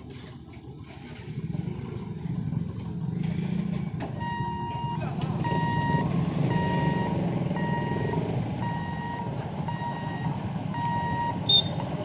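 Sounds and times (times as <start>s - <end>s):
idling engines hum: 0.0s - 12.0s
electronic warning beeps: 4.2s - 11.8s.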